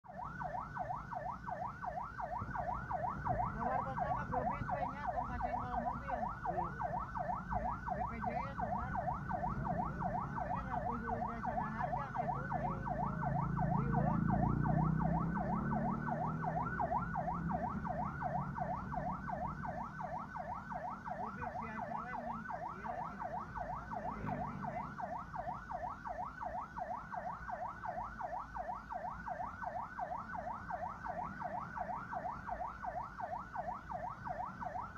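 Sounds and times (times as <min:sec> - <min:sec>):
ambulance siren yelping: 0:00.0 - 0:34.9
car driving rumble: 0:02.3 - 0:25.4.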